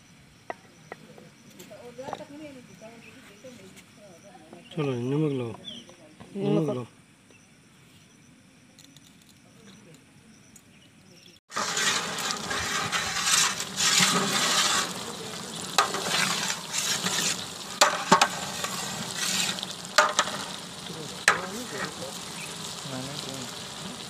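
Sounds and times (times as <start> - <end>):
metal spatula scraping a pot: 11.5 - 22.7
meat sizzling in a pot: 11.5 - 24.0.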